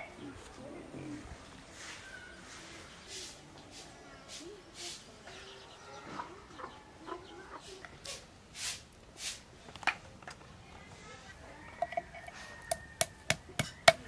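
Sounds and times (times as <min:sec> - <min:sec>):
chickens clucking: 0:00.0 - 0:08.4.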